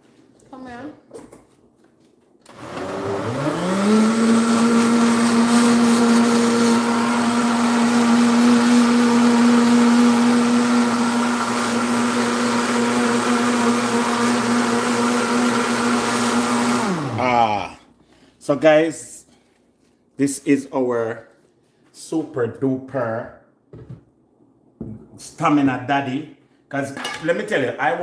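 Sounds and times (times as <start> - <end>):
blender motor whining: 2.5 - 17.7.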